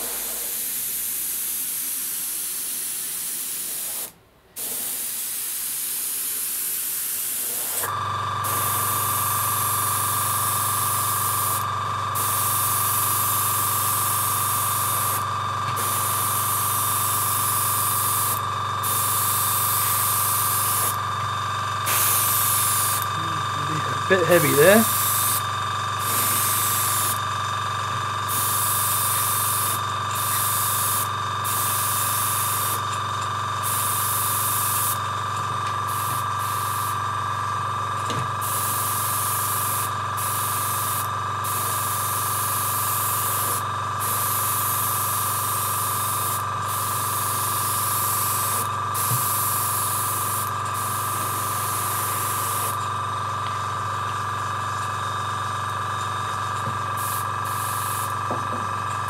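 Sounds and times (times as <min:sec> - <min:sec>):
airbrush air hiss: 0:00.0 - 0:11.6, 0:12.2 - 0:15.2, 0:15.8 - 0:21.0, 0:21.8 - 0:25.4, 0:26.0 - 0:27.2, 0:28.3 - 0:32.8, 0:33.6 - 0:35.0, 0:35.9 - 0:37.0, 0:38.4 - 0:52.8, 0:57.0 - 0:58.2
steady hum: 0:07.8 - 0:29.8.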